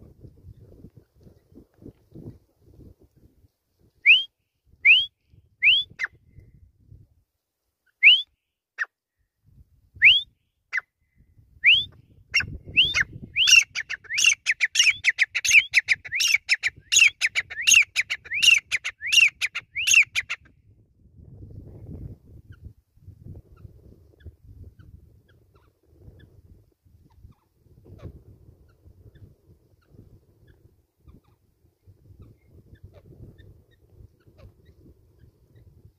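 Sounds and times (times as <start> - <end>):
francolin calling: 11.6 - 20.4.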